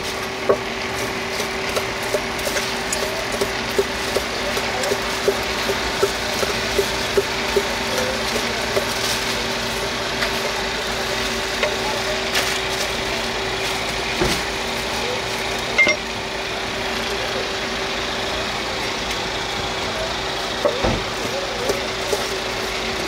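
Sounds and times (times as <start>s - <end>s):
engine idling: 0.0s - 23.0s
metal clinks: 15.8s - 16.0s.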